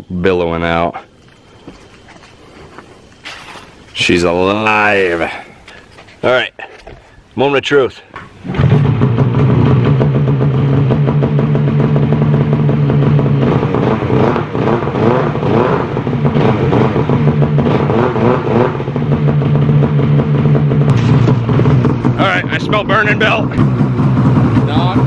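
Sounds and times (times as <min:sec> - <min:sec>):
snowmobile engine idling and revving: 0:08.4 - 0:25.0.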